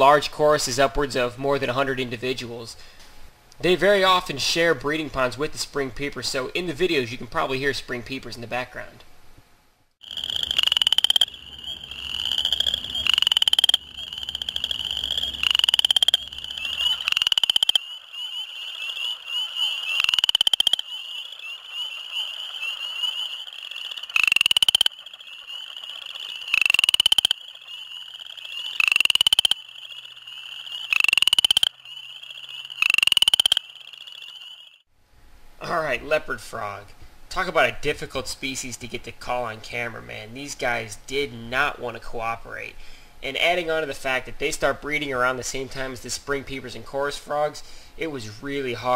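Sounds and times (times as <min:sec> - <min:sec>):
chorus of frogs: 0:10.0 - 0:34.8
frog pulsed trills: 0:10.0 - 0:34.9.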